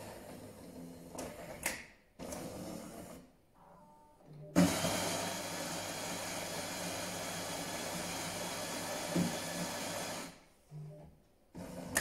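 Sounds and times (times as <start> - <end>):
coffee machine motor whirring: 4.6 - 10.4.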